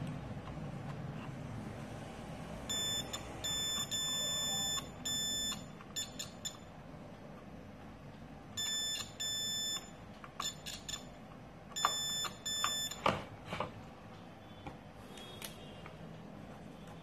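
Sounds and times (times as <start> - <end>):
multimeter continuity beeps: 2.7 - 6.8, 8.6 - 13.1.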